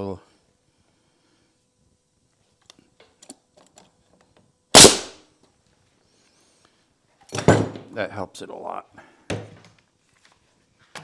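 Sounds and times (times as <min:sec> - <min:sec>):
nail gun firing: 0:04.8 - 0:05.2.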